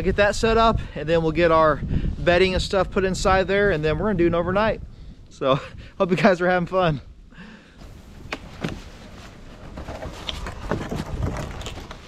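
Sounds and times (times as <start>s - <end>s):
wood knocks and scrapes: 7.8s - 12.0s.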